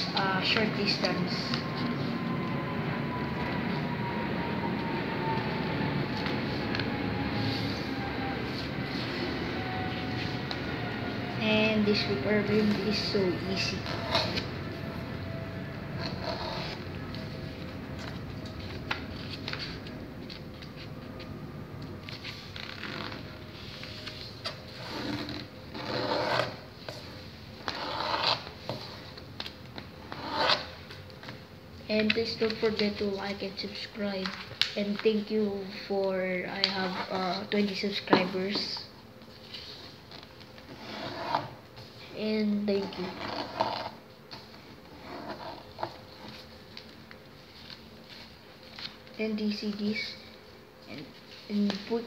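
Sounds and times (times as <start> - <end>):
paper rustling while folded: 16.0 - 35.4, 42.8 - 50.0.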